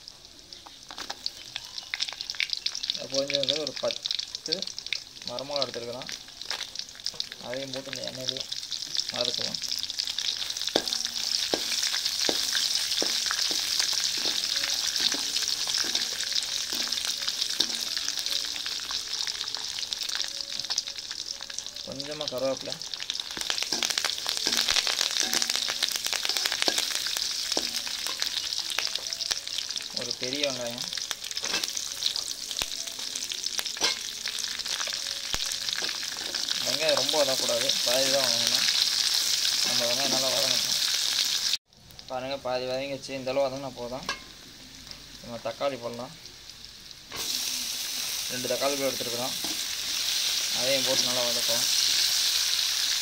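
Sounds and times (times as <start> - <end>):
food sizzling in hot oil: 0.0 - 53.0
metal ladle scraping pan: 23.4 - 28.4, 31.4 - 31.9, 33.8 - 34.1.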